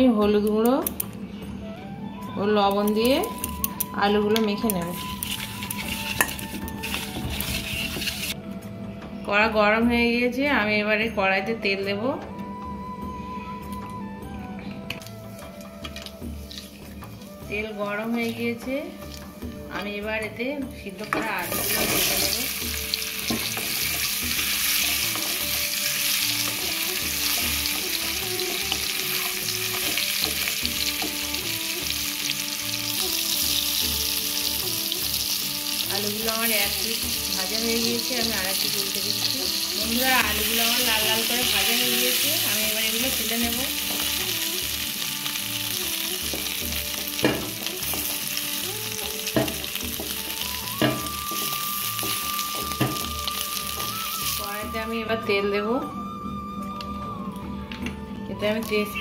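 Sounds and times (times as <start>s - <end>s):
potatoes sizzling in hot oil: 4.6s - 8.4s, 21.2s - 54.8s
wooden spatula knocking on pan: 46.3s - 48.1s, 49.3s - 50.2s, 50.8s - 53.1s.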